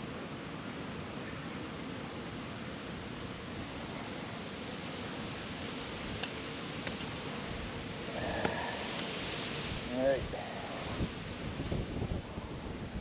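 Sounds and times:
wind on microphone: 0:07.5 - 0:13.0.

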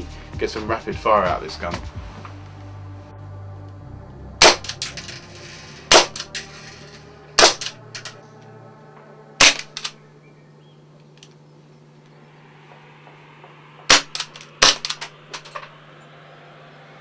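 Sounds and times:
airsoft pistol shots: 0:04.4 - 0:04.8, 0:05.9 - 0:06.2, 0:07.4 - 0:07.8, 0:09.4 - 0:09.9, 0:13.9 - 0:15.1.

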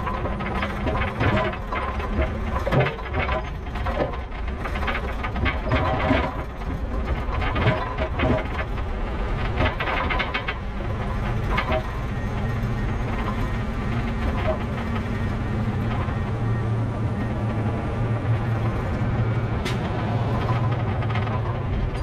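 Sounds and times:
diesel truck engine running: 0:00.0 - 0:22.0
trailer rattling and clanking: 0:00.0 - 0:22.0.

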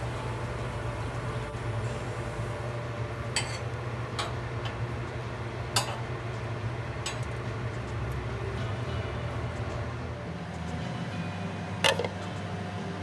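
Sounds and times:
metal tongs clicking on grate: 0:07.0 - 0:07.4.

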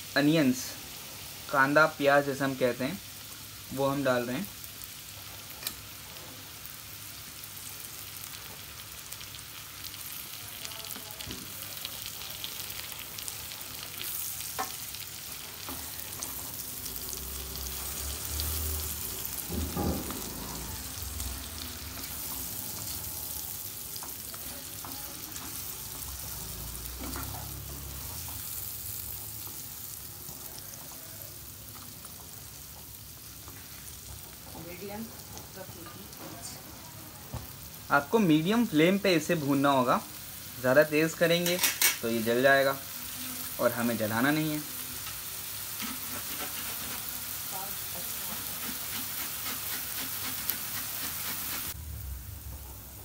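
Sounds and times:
onions sizzling in hot oil: 0:00.0 - 0:53.0
spatula scraping and knocking pan: 0:45.8 - 0:47.1, 0:48.1 - 0:51.8.

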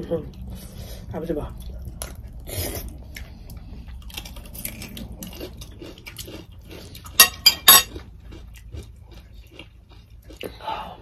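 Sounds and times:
chewing food with crunches: 0:00.1 - 0:11.0.

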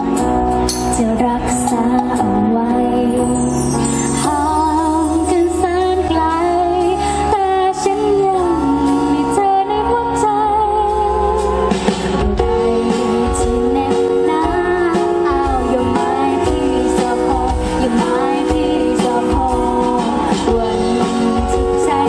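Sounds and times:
live band playing: 0:00.0 - 0:22.0
woman singing: 0:00.0 - 0:22.0.

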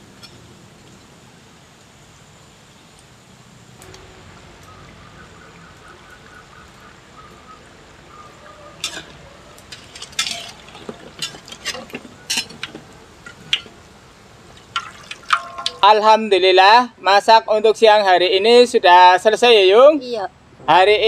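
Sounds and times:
metal skimmer scraping wok: 0:08.8 - 0:13.8, 0:14.7 - 0:15.9
fritters sizzling in hot oil: 0:08.8 - 0:15.7.

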